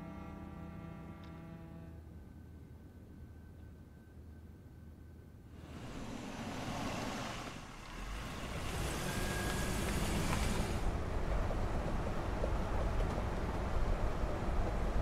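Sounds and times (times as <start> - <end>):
car engine and tyre noise: 5.5 - 15.0.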